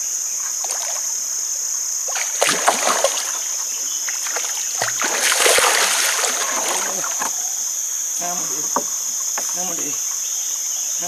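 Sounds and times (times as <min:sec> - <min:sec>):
high insect buzz: 0:00.0 - 0:11.0
fish thrashing and splashing: 0:02.1 - 0:07.4.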